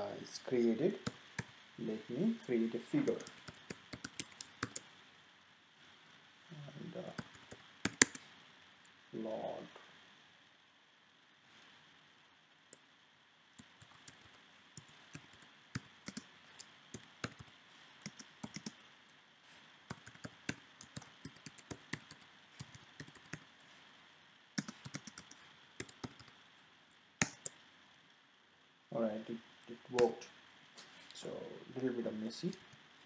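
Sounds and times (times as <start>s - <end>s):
faint steady hiss: 0.0s - 33.0s
computer keyboard typing: 3.1s - 4.9s, 7.1s - 8.2s, 13.6s - 18.8s, 19.9s - 23.5s, 24.6s - 26.4s, 27.2s - 27.6s.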